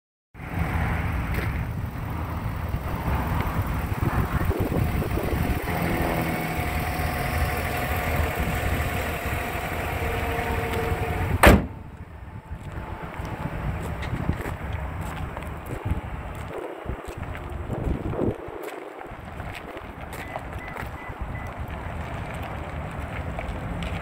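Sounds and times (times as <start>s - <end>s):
truck engine idling: 0.4s - 16.3s
hood slamming shut: 9.9s - 11.9s.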